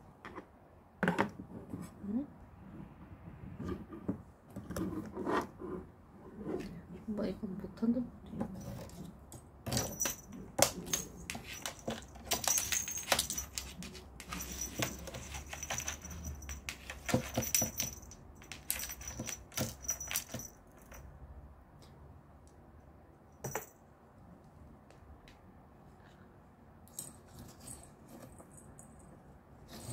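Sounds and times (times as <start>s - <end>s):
small bell jingling: 9.7s - 21.0s.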